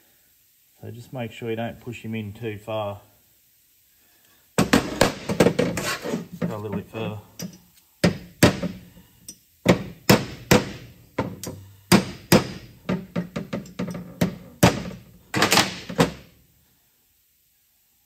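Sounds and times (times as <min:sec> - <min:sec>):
hammer tapping metal punch: 0:07.4 - 0:16.2.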